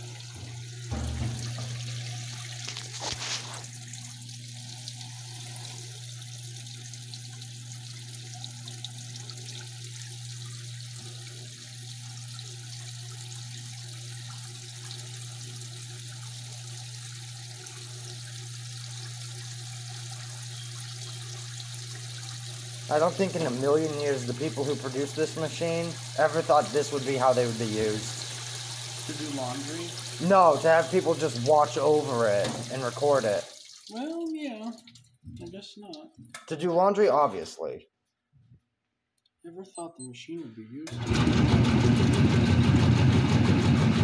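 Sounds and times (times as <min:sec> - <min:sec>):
water splashing and pouring: 0:00.0 - 0:09.4, 0:21.8 - 0:35.3
washer pump hum: 0:00.0 - 0:35.5, 0:40.9 - 0:44.0
short knocks: 0:00.4 - 0:02.8.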